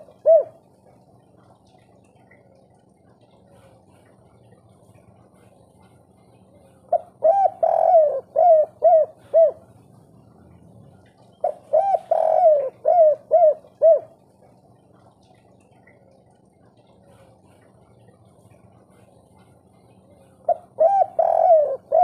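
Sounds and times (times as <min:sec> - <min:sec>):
dove cooing: 0:00.0 - 0:00.8, 0:06.8 - 0:10.0, 0:11.3 - 0:15.4, 0:20.2 - 0:22.0.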